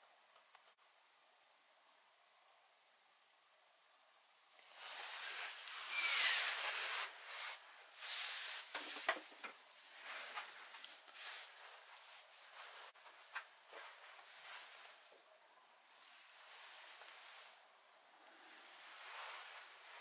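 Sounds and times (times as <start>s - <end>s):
faint handling rustle: 4.6s - 20.0s.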